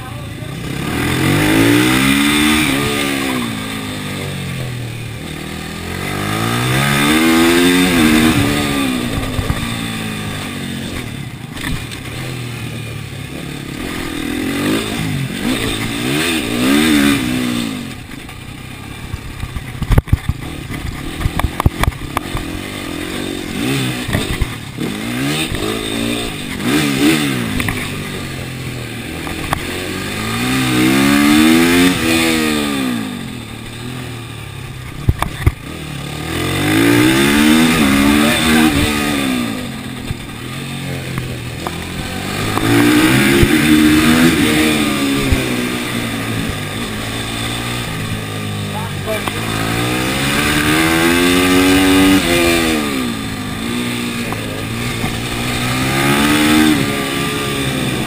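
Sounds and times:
motorcycle engine revving: 0:00.0 - 0:58.0
sharp clicks and knocks: 0:10.9 - 0:12.3, 0:19.1 - 0:22.6, 0:24.0 - 0:25.7, 0:29.2 - 0:29.7, 0:34.8 - 0:35.7, 0:41.1 - 0:45.6.

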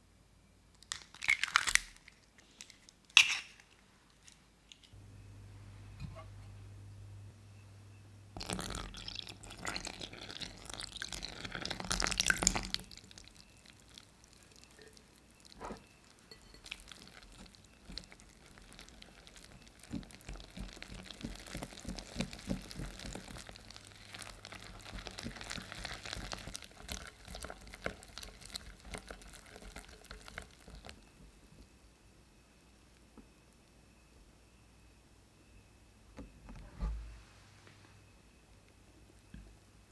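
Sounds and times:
milk pouring into glass bowl: 0:08.4 - 0:15.5.

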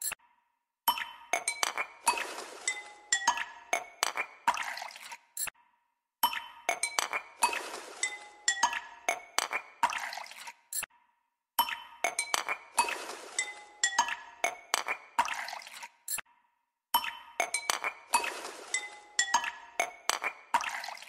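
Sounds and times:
glassy chiming background music: 0:06.3 - 0:09.1, 0:18.3 - 0:20.1.

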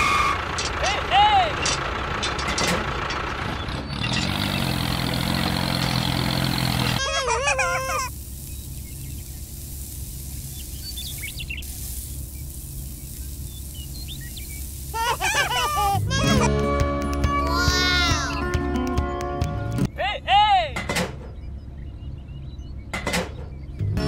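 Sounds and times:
motor hum: 0:01.6 - 0:19.8
sand and gravel pouring: 0:06.5 - 0:16.1
bird chirps: 0:07.6 - 0:16.0, 0:21.1 - 0:24.0.

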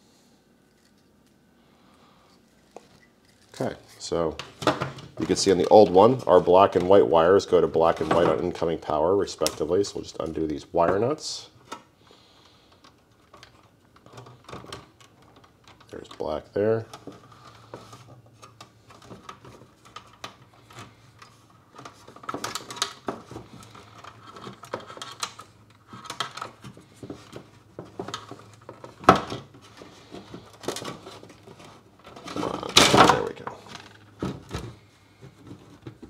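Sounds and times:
wires rattling in plastic housing: 0:12.7 - 0:36.0.

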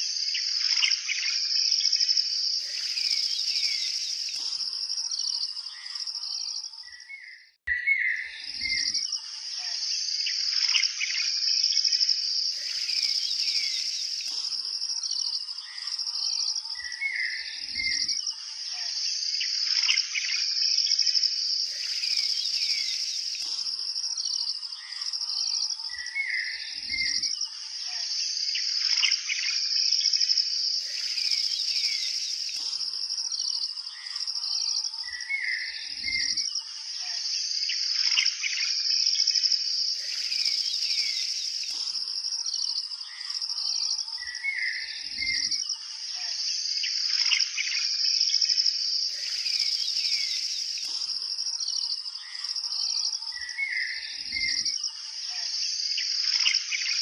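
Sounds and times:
high-pitched insect chorus: 0:00.0 - 0:07.3, 0:07.9 - 0:57.0
birds chirping: 0:02.6 - 0:11.4, 0:12.5 - 0:18.1, 0:21.6 - 0:27.2, 0:30.8 - 0:38.6, 0:39.9 - 0:45.5, 0:49.0 - 0:54.6.

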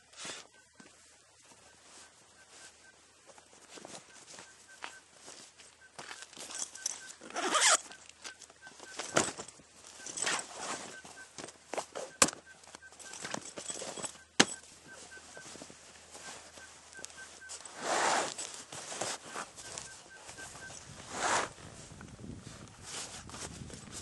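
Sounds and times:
canvas rustling and flapping: 0:06.5 - 0:24.0.

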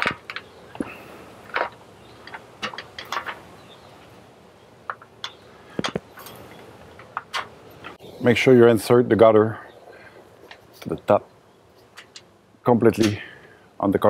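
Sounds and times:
metal gutter clicking and knocking: 0:01.5 - 0:03.4.

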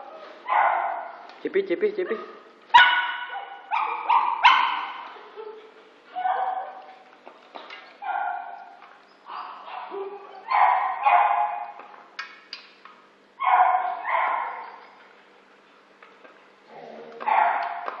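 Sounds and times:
dog barking: 0:00.5 - 0:01.2, 0:02.0 - 0:05.4, 0:06.2 - 0:07.0, 0:08.0 - 0:08.7, 0:09.3 - 0:11.8, 0:13.4 - 0:14.8, 0:17.2 - 0:18.0.

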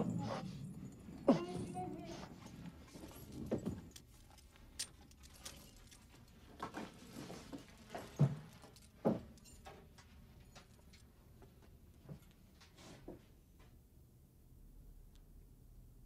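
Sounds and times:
chain and leather gear jangling: 0:00.0 - 0:11.0.

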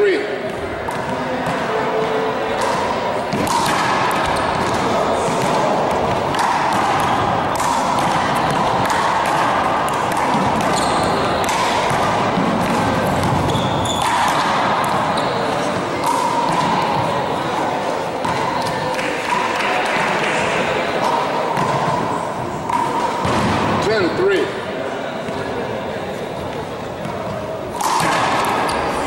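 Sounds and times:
ball struck by gloved hands: 0:02.6 - 0:15.1, 0:27.0 - 0:28.8
ball smacking wall and floor: 0:27.0 - 0:28.9.

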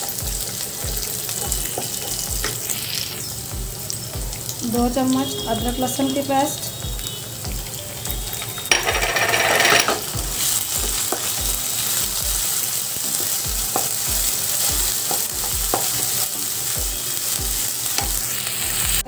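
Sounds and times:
spatula tapping pan: 0:00.0 - 0:02.7, 0:06.8 - 0:18.4
food sizzling in hot oil: 0:00.0 - 0:19.0.

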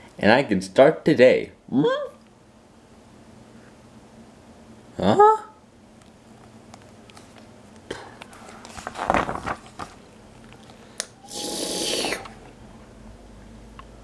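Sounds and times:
paper page turning: 0:08.4 - 0:10.0
person slurping: 0:11.3 - 0:12.4.

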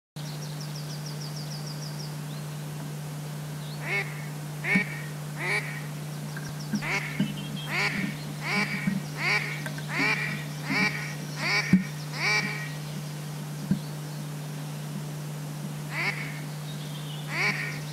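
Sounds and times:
steady low hum: 0:00.2 - 0:17.9
duck quacking: 0:03.8 - 0:05.9, 0:06.8 - 0:12.8, 0:15.9 - 0:16.4, 0:17.3 - 0:17.9.

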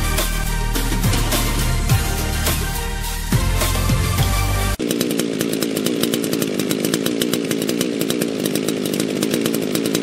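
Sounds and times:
music: 0:00.0 - 0:04.8
chainsaw engine running: 0:00.0 - 0:10.0.

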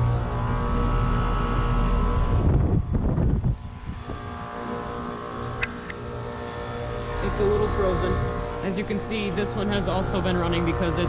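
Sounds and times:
heat pump compressor humming: 0:00.0 - 0:11.0
sharp click: 0:05.4 - 0:06.0.

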